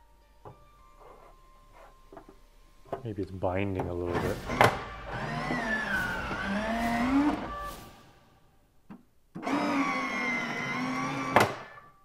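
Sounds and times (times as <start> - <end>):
electric motor whining: 4.1 - 7.8, 9.4 - 11.8.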